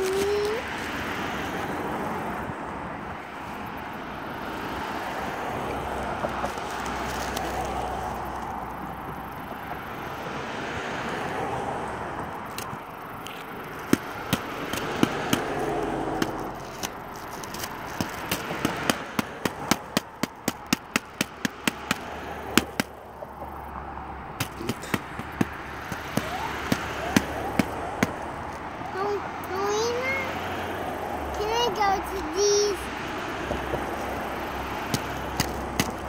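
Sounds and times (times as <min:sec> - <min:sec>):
cars passing slowly: 0:00.0 - 0:36.0
sharp snaps: 0:12.5 - 0:23.0, 0:24.4 - 0:28.6, 0:34.8 - 0:36.0.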